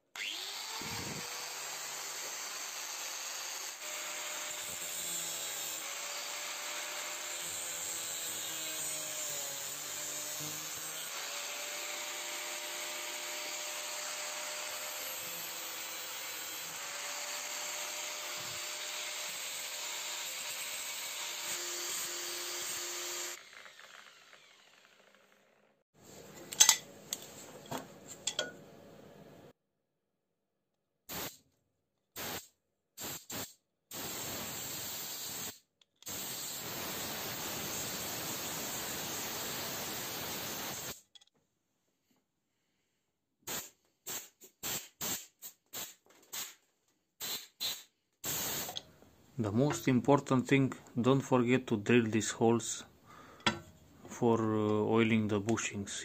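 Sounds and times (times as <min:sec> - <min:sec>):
angle grinder cutting metal: 0:00.2 - 0:25.8, 0:36.1 - 0:41.0
compressed air blow gun hissing: 0:31.1 - 0:31.4, 0:32.2 - 0:41.0, 0:47.2 - 0:48.8.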